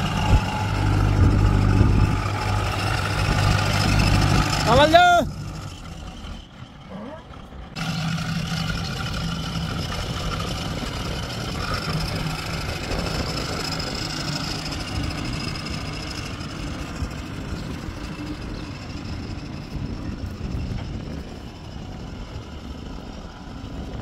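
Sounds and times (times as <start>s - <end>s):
high steady whine: 0.0s - 6.5s
heavy machinery diesel engine: 0.0s - 24.0s.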